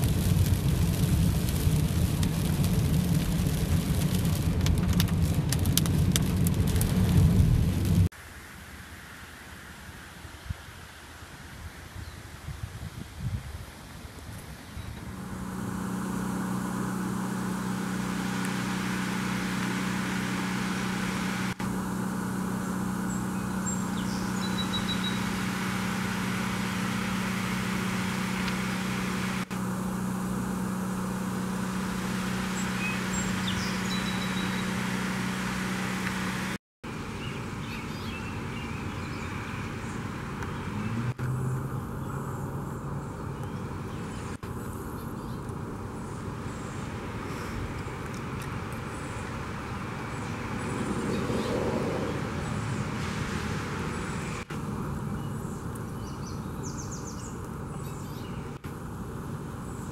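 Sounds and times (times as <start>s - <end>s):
steady motor hum: 15.0s - 59.9s.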